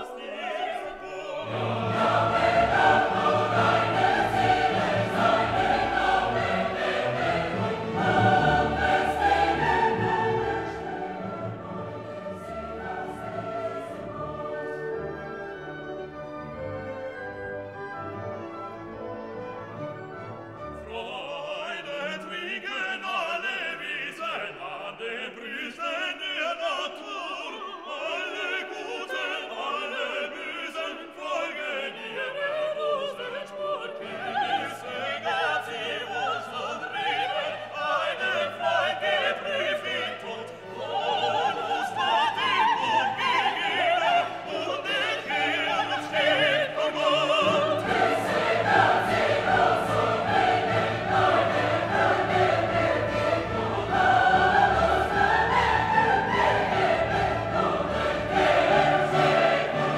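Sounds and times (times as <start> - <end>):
operatic singing with orchestra: 0.0 - 59.9.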